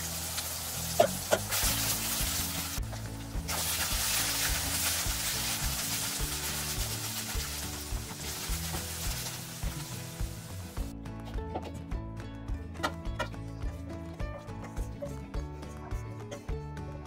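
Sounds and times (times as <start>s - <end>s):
meat sizzling in a wok: 0.0s - 10.9s.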